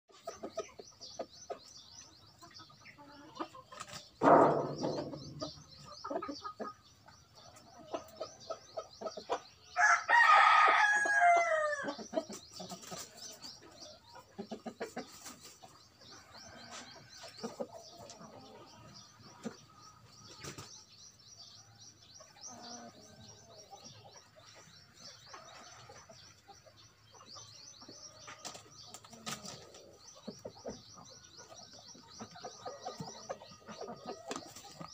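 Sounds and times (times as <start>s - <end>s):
chicken clucking: 0.1s - 34.9s
loud short thump: 4.2s - 5.2s
rooster crowing: 9.8s - 11.9s.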